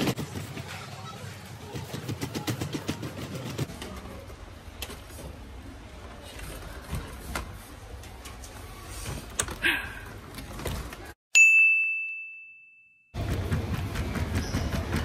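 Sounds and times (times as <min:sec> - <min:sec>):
shopping cart wheels rumbling: 0:00.0 - 0:09.4, 0:13.2 - 0:15.0.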